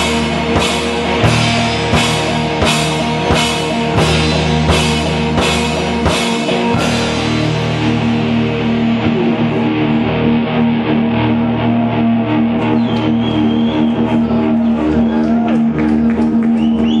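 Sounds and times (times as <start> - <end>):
electric guitar and bass ringing chord: 0.0 - 15.0
picked guitar notes: 0.0 - 17.0.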